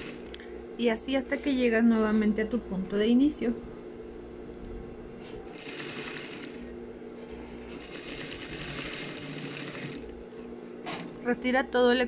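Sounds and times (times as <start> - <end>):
sewing machine stitching: 0.0 - 0.3, 5.5 - 6.6, 7.7 - 10.1
motor hum: 0.0 - 12.0.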